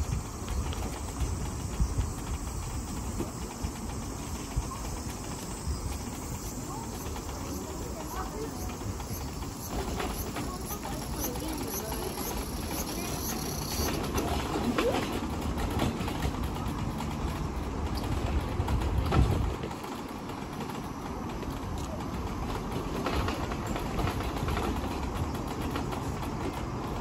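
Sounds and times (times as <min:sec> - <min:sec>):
electric wheelchair rolling: 0:00.0 - 0:27.0.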